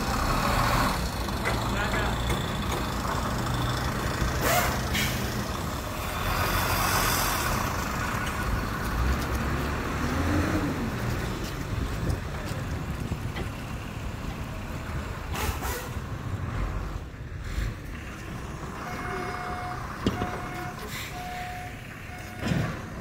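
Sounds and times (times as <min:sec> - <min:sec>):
low vehicle engine rumble: 0:00.0 - 0:23.0
reversing alarm beeps: 0:18.8 - 0:22.8.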